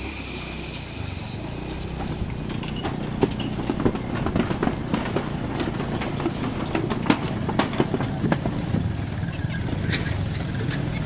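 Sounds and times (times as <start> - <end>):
engine running low: 0.0 - 11.0
irregular knocks and rattles: 2.0 - 9.0.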